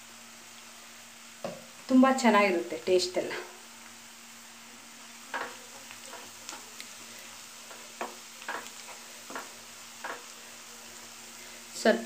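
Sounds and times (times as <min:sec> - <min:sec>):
onions sizzling in oil: 0:00.0 - 0:12.0
spatula scraping and stirring: 0:05.3 - 0:11.0.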